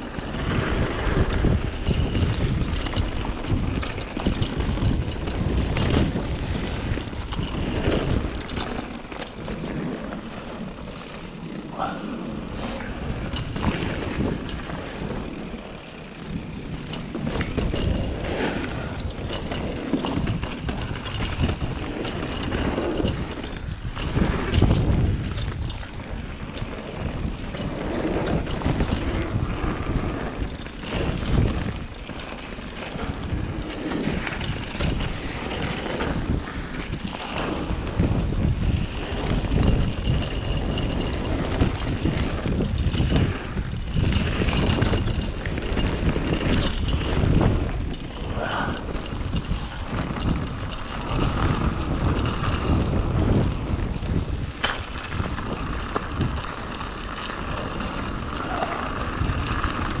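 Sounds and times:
wind buffeting microphone: 0:00.0 - 1:00.0.

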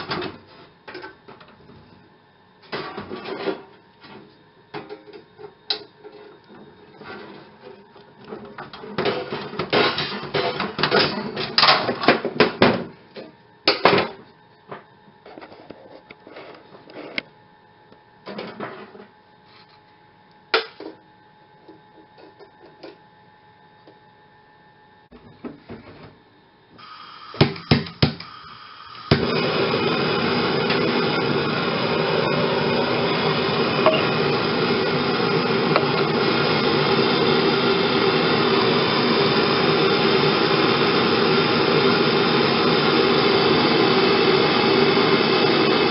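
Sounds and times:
gas torch hissing: 0:26.7 - 0:45.9
flame rushing: 0:26.8 - 0:45.9.

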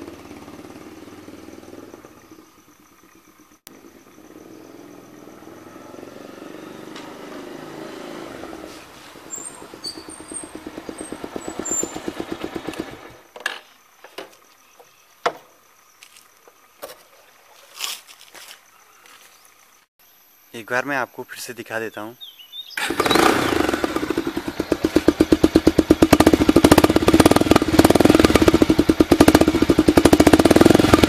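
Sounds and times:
motorcycle engine popping exhaust: 0:09.2 - 0:13.1, 0:23.2 - 0:31.0.

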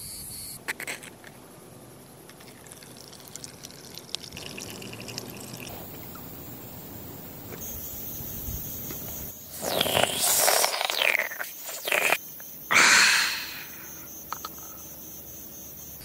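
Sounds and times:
juice trickling into plastic cup: 0:02.3 - 0:06.2.

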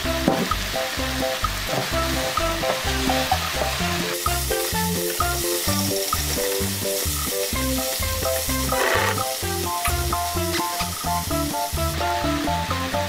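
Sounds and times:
food sizzling in a wok: 0:00.0 - 0:13.0
rhythmic background music: 0:00.0 - 0:13.0
spatula stirring in wok: 0:02.7 - 0:11.3.

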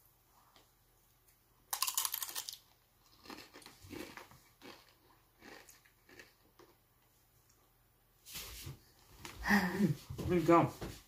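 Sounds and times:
tortilla chip crunching: 0:01.7 - 0:06.8.

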